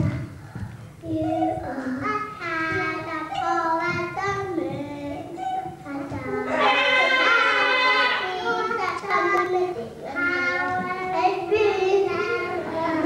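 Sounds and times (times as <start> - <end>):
high singing voice: 0.0 - 13.0.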